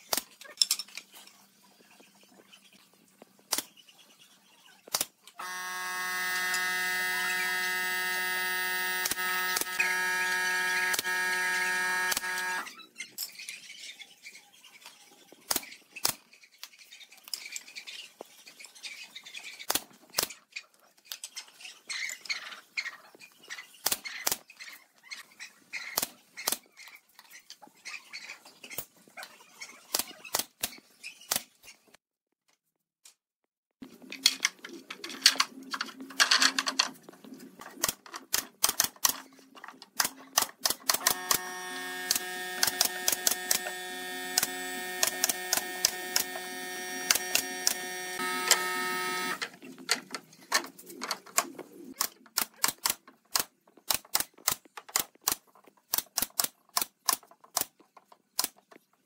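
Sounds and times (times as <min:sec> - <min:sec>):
nail gun firing: 0:04.9 - 0:12.7, 0:40.0 - 0:49.4
loud steady buzzing hum: 0:05.4 - 0:12.7, 0:41.0 - 0:49.4.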